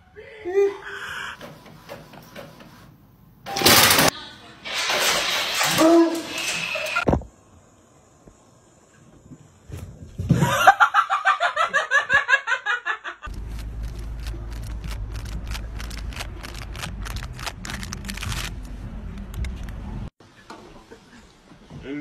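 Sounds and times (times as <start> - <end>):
person laughing hard: 10.4 - 13.3.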